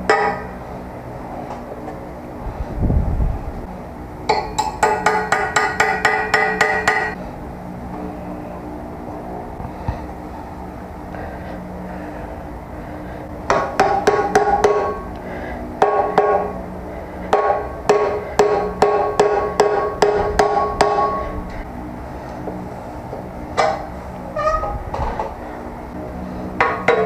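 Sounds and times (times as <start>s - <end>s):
hammer striking screwdriver on metal: 4.3s - 7.2s.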